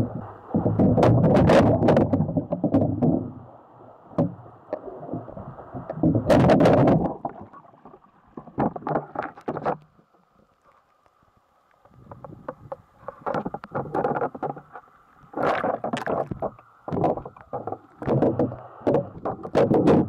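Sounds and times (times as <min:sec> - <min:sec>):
sharp splashes and knocks: 0:00.5 - 0:03.3, 0:05.8 - 0:07.6.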